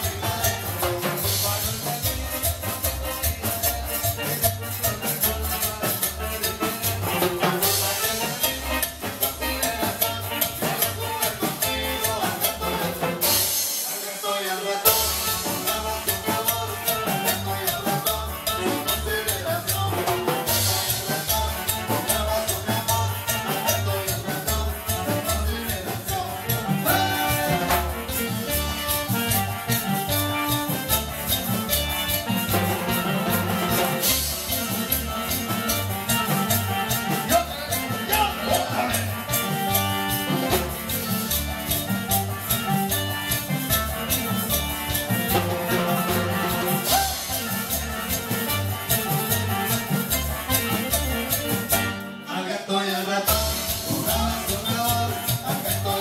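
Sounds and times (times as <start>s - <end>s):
live latin dance band: 0.0s - 56.0s
timbales and drum kit: 14.9s - 52.1s.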